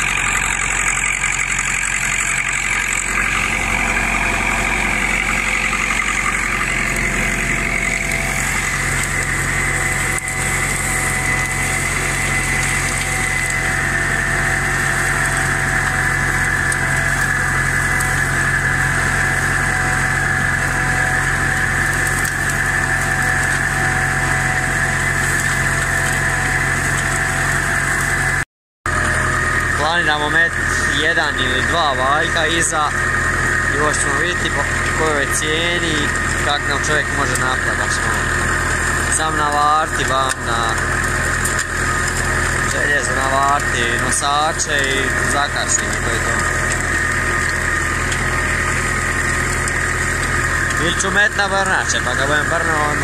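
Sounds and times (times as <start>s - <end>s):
high steady whine: 0.0s - 53.0s
tractor diesel engine running: 0.0s - 53.0s.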